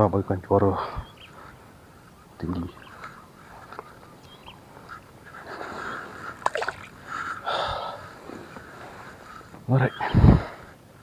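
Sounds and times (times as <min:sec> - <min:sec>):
water splashing and sloshing: 0:06.3 - 0:07.0
sharp splash: 0:06.4 - 0:06.9.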